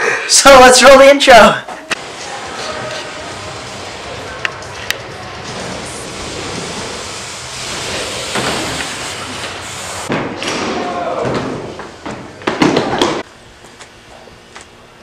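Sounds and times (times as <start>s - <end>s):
rolling hiss of wheels: 2.0s - 10.1s.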